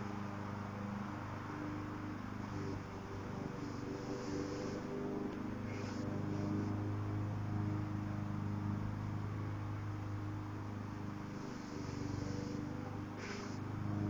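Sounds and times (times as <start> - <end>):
low mechanical hum: 0.0 - 14.0
aerosol can spraying: 13.2 - 13.6.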